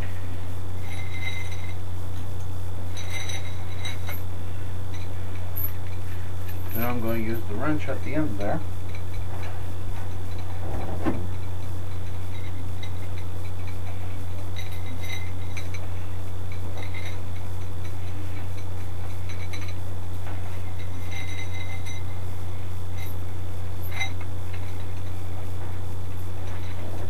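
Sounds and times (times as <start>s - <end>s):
low hum: 0.0s - 27.0s
steel chain clinking: 0.8s - 1.8s, 2.9s - 27.0s.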